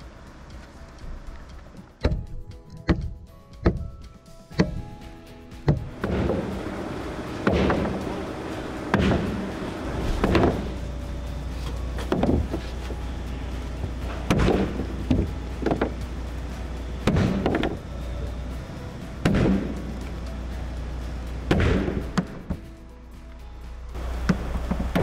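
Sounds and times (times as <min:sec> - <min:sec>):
background music: 0:00.0 - 0:25.0
heavy thuds: 0:05.6 - 0:17.9, 0:19.0 - 0:20.2, 0:21.4 - 0:22.7.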